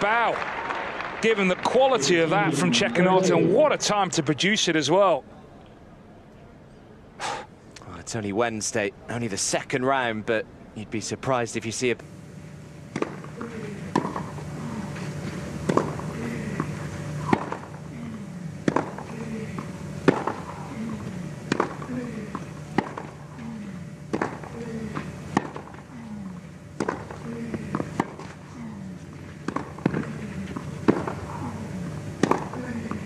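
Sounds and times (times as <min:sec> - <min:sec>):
players grunting: 0:01.4 - 0:04.4, 0:13.4 - 0:25.2, 0:27.0 - 0:29.0, 0:29.9 - 0:31.8, 0:32.4 - 0:33.0
tennis rackets hitting ball: 0:12.9 - 0:26.2, 0:26.8 - 0:28.4, 0:29.1 - 0:31.6, 0:32.2 - 0:33.0.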